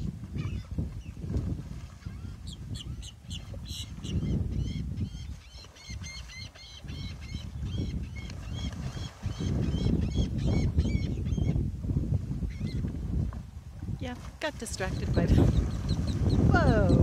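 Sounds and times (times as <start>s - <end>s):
gulls calling: 14.4s - 17.0s.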